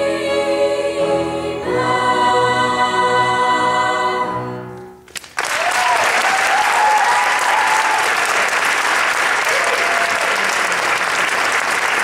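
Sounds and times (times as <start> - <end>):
audience applauding loudly: 5.1 - 12.0.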